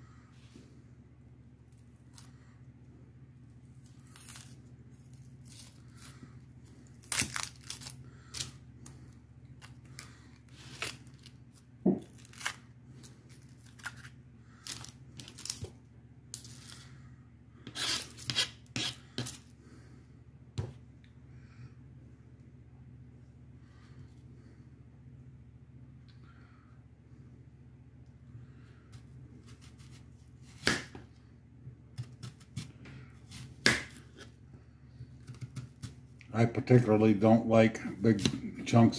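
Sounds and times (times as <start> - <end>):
onion skin crackling and tearing: 3.7 - 16.9.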